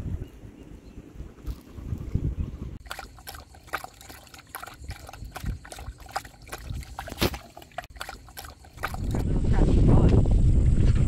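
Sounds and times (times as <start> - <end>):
water lapping against metal hull: 2.8 - 9.2.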